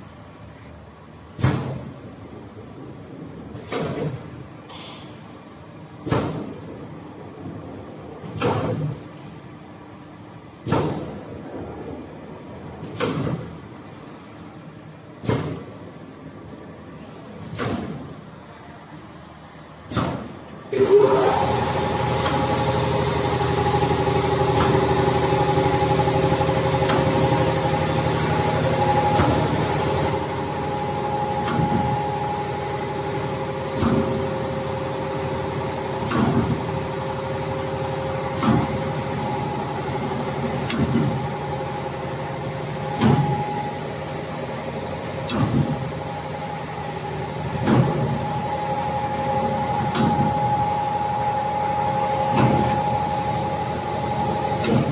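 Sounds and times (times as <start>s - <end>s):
machine motor hum: 19.0s - 54.9s.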